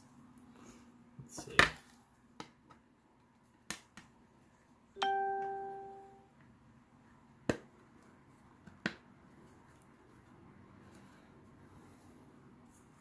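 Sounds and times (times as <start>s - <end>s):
bell-like chime: 5.0s - 6.2s.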